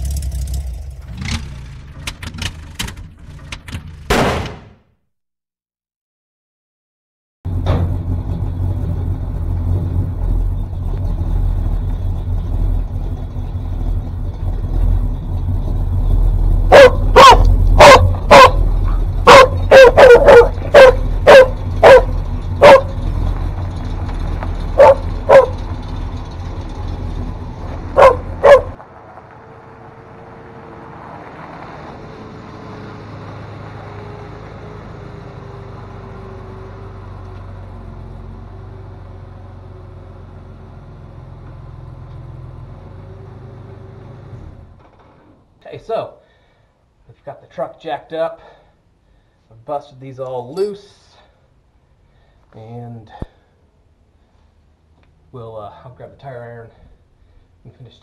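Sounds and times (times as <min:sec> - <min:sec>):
car engine rumbling: 0:00.0 - 0:04.6, 0:07.5 - 0:47.8, 0:50.7 - 0:58.0
dog barking: 0:16.7 - 0:23.0, 0:24.8 - 0:25.6, 0:27.9 - 0:28.8.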